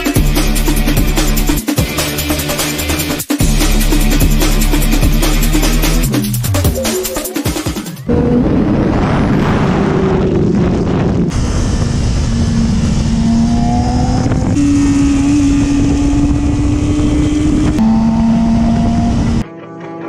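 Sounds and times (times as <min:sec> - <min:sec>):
heavy wind noise: 0:08.0 - 0:19.4
motorcycle engine at high revs: 0:11.0 - 0:19.4.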